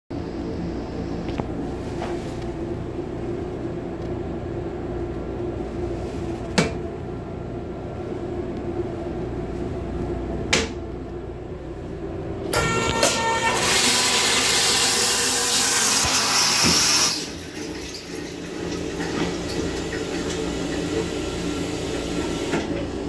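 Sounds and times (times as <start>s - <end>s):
toilet flushing: 12.5s - 23.0s.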